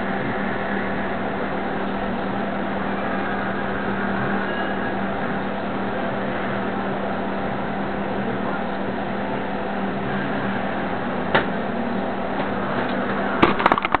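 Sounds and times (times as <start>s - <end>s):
steady mechanical hum: 0.0s - 14.0s
knocks and rattles: 13.4s - 14.0s.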